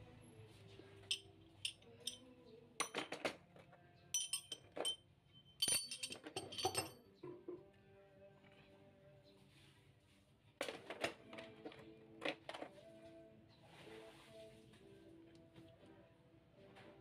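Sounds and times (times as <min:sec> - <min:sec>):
metal sockets clinking: 0:01.0 - 0:02.2, 0:02.8 - 0:03.3, 0:04.2 - 0:07.0.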